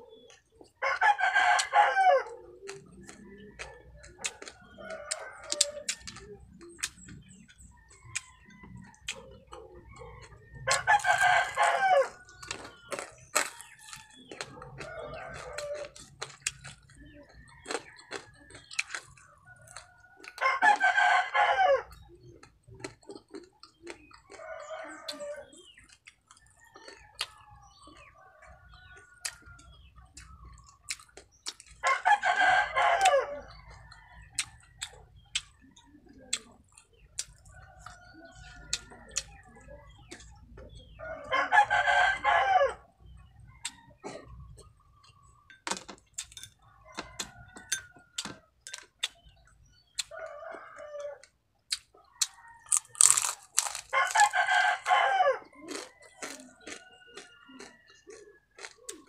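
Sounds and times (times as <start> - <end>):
crunchy food being chewed: 0.0 - 59.0
rooster crowing: 0.8 - 2.4, 10.1 - 12.3, 19.7 - 22.0, 31.8 - 33.5, 41.0 - 42.9, 50.2 - 51.3, 52.2 - 58.7.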